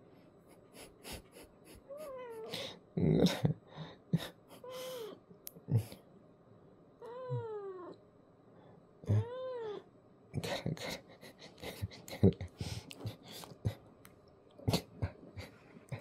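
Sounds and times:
cat meowing: 0:07.0 - 0:08.0, 0:09.1 - 0:09.9.

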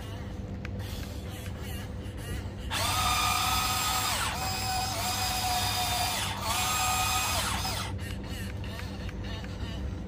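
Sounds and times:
small electric motors whining: 0:02.7 - 0:08.0.

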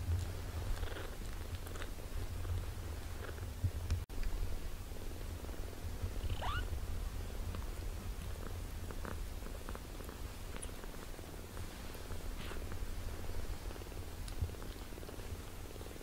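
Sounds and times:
cat purring: 0:00.0 - 0:03.6, 0:04.9 - 0:16.0
kitten mewing: 0:06.2 - 0:06.7.

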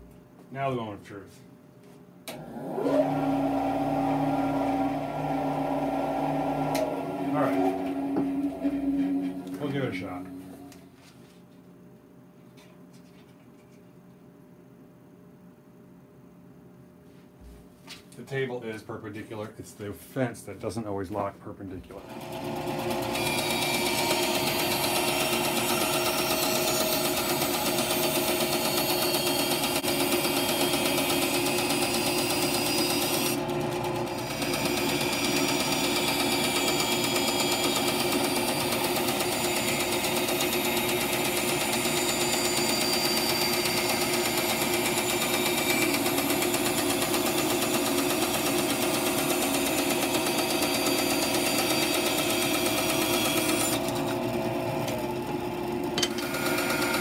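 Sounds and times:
bandsaw cutting wood: 0:02.7 - 0:10.6, 0:22.1 - 0:55.0, 0:56.0 - 0:57.0.

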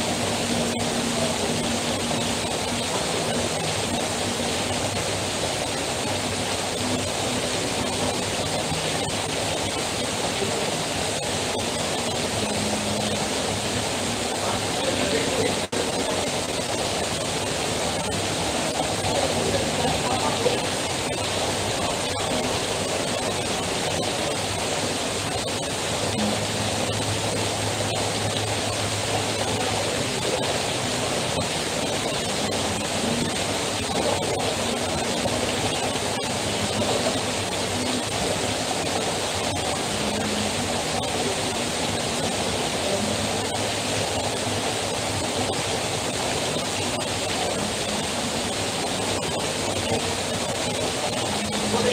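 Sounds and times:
heavy rain falling: 0:00.0 - 0:51.9
water streaming off roof: 0:00.0 - 0:51.9.

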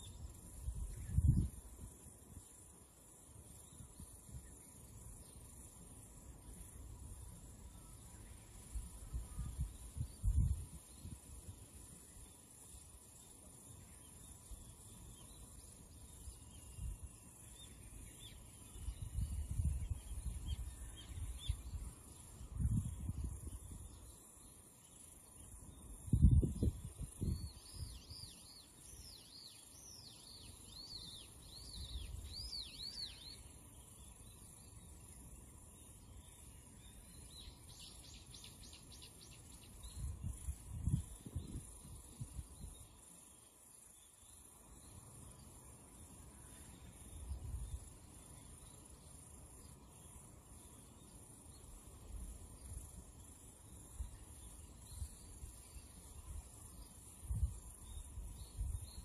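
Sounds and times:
steady high hiss: 0:00.0 - 0:59.0
bird chirping: 0:11.9 - 0:41.6.

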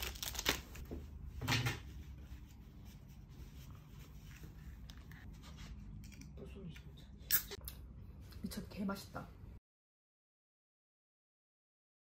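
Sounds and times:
faint low room hum: 0:00.0 - 0:09.6.

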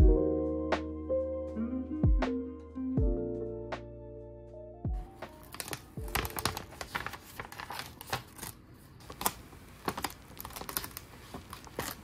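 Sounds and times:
sticker paper crackling and rustling: 0:05.2 - 0:12.0.

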